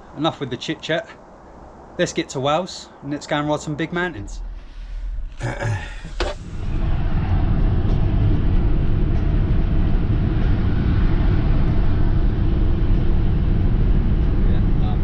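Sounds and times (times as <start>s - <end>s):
road and engine rumble in car: 5.2s - 15.0s.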